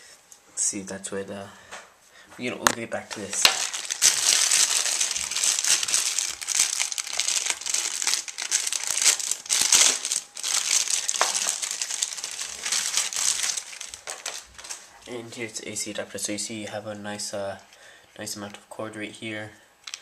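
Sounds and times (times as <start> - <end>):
plastic packaging crinkling: 2.7 - 15.2.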